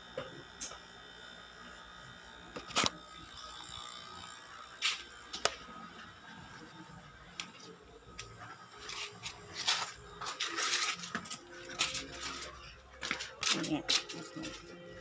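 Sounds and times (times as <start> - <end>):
objects rustling and clicking: 7.4 - 14.8.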